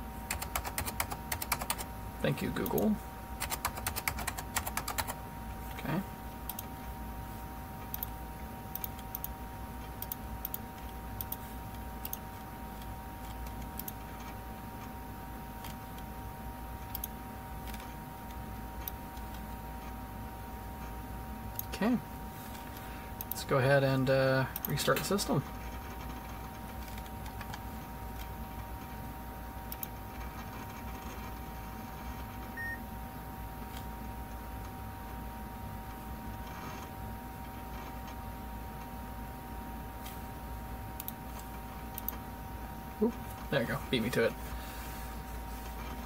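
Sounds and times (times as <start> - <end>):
faint hum: 0.0 - 46.0
computer mouse buttons clicking: 9.9 - 11.4, 12.8 - 14.0.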